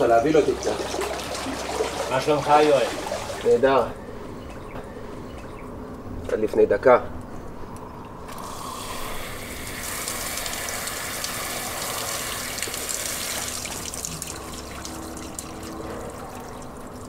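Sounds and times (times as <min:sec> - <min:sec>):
shower spray pouring: 0:08.3 - 0:17.0.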